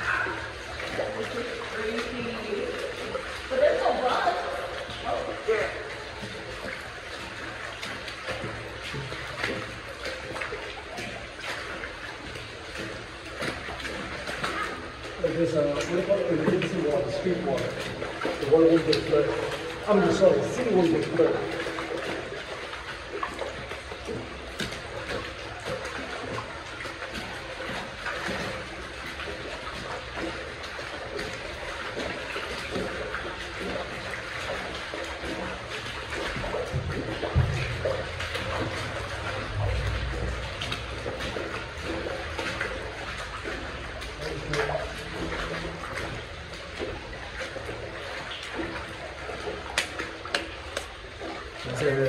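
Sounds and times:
water running and trickling: 0:00.0 - 0:52.0.

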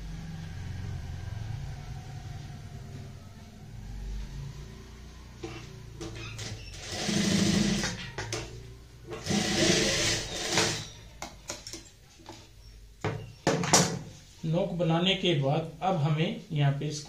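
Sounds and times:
sewing machine stitching fabric: 0:05.4 - 0:08.5, 0:09.1 - 0:11.0.

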